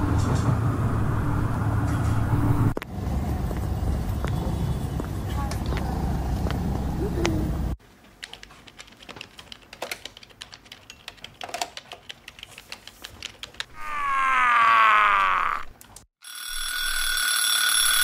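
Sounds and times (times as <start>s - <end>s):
street traffic: 0.0s - 7.8s
typing on laptop keyboard: 8.1s - 13.7s
loud wail falling in pitch: 13.8s - 15.7s.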